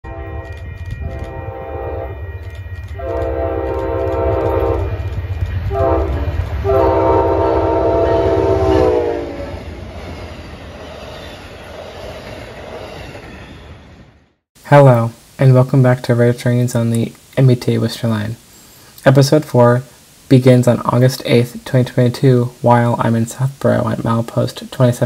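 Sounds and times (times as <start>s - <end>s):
train horn blasts: 0.0s - 5.0s, 5.6s - 9.6s
locomotive engine rumble: 0.1s - 14.2s.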